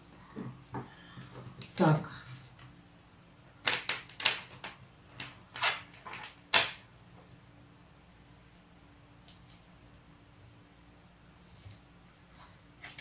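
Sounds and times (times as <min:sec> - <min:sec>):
cards clicking and slapping: 0:03.6 - 0:06.8.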